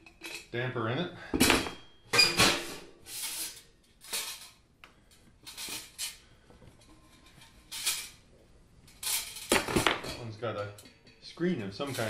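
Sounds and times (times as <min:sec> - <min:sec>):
metal pipes scraping and knocking: 0:01.4 - 0:04.6, 0:05.4 - 0:08.2, 0:08.9 - 0:12.0.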